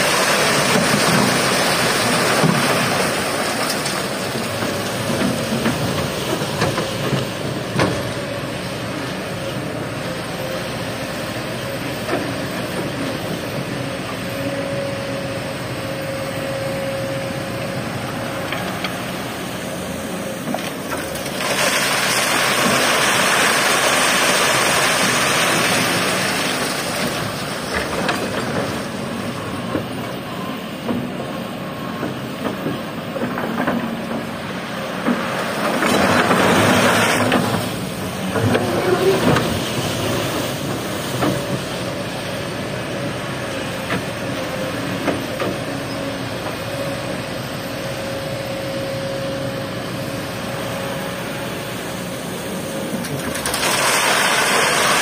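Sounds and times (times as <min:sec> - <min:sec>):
excavator engine and hydraulics: 0:00.0 - 0:55.0
gravel pouring onto metal screen: 0:53.4 - 0:55.0.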